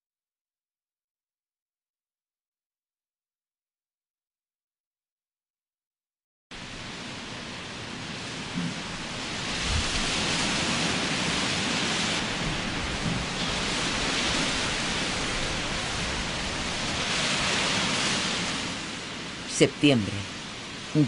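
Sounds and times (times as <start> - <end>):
heavy rain and gusting wind: 6.5 - 21.0.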